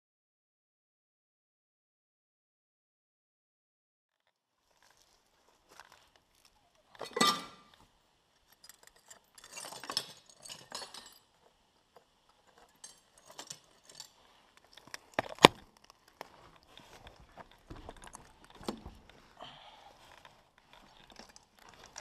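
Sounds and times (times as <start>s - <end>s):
clinks and scrapes: 4.7s - 22.0s.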